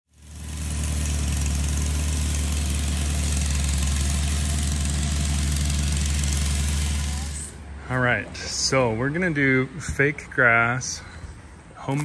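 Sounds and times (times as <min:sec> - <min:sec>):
plate compactor engine running: 0:00.1 - 0:07.8.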